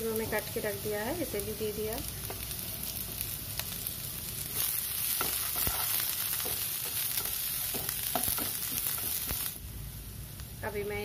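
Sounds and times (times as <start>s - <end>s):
vegetables sizzling in frying pan: 0.0s - 11.0s.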